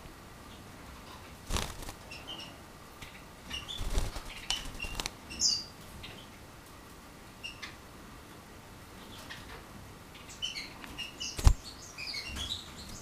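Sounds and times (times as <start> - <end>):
bird wings fluttering: 1.4 - 2.1, 3.7 - 5.2, 11.4 - 11.7
bird chirping: 1.6 - 6.4, 7.4 - 7.8, 9.0 - 13.0.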